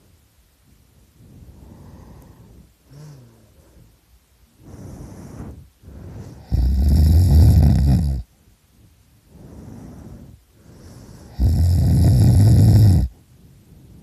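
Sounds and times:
quiet breaths: 0.0s - 14.0s
person snoring loudly: 6.3s - 8.3s, 11.2s - 13.2s.

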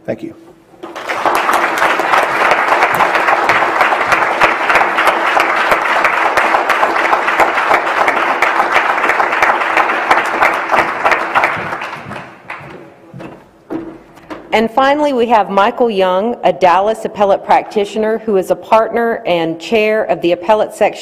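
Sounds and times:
audience applauding: 0.8s - 12.9s.

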